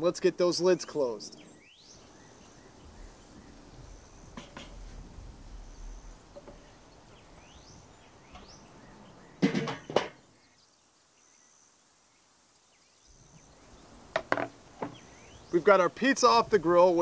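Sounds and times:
faint bird chirps: 0:00.8 - 0:15.6
sharp knocks on grill grate: 0:04.3 - 0:05.0, 0:09.4 - 0:10.2, 0:14.1 - 0:15.0.

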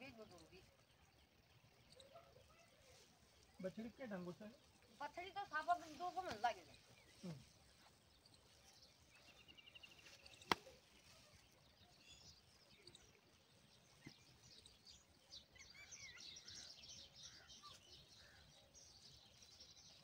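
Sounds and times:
faint birds chirping: 0:00.0 - 0:20.0
sharp click: 0:10.4 - 0:10.7.

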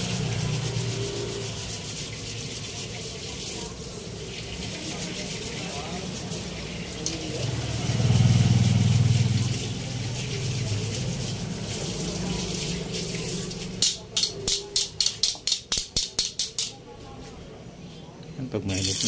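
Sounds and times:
food sizzling in oil: 0:00.0 - 0:14.0.

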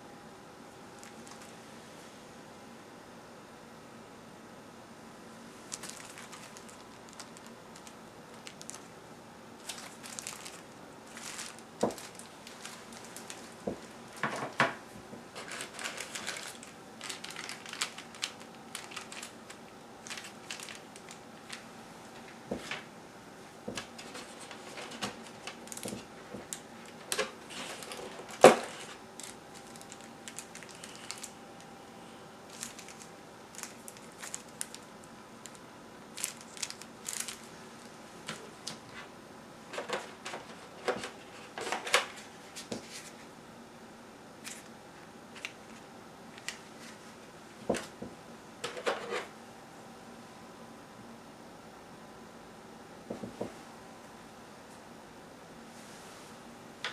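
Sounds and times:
plastic packaging crinkling: 0:01.0 - 0:01.5, 0:05.7 - 0:09.0, 0:09.6 - 0:14.6, 0:15.3 - 0:21.7, 0:23.8 - 0:31.4, 0:32.5 - 0:38.8.

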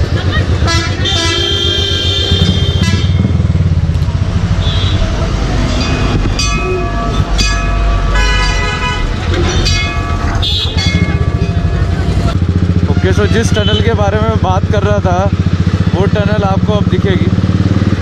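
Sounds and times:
motorcycle engine running: 0:00.0 - 0:18.0
vehicle horns honking: 0:00.5 - 0:03.4, 0:04.5 - 0:05.2, 0:08.0 - 0:11.4, 0:12.6 - 0:14.4.

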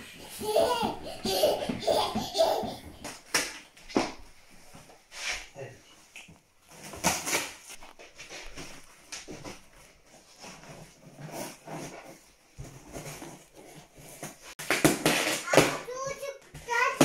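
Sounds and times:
cardboard scraping and rustling: 0:06.7 - 0:15.5.

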